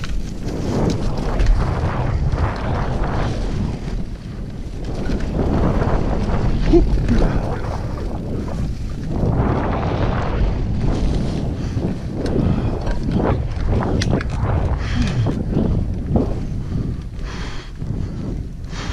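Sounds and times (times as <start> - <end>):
bike tyres rattling on dirt trail: 0.0 - 18.9
wind buffeting microphone: 0.0 - 18.9.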